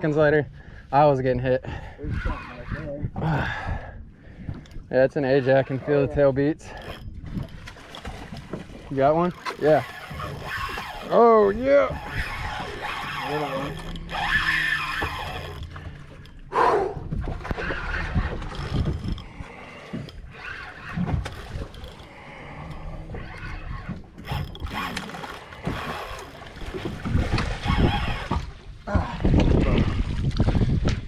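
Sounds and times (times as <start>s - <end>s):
wind noise on microphone: 1.7s - 4.9s, 16.6s - 21.8s, 25.6s - 31.0s
fishing reel under load: 9.4s - 16.4s, 18.1s - 26.7s.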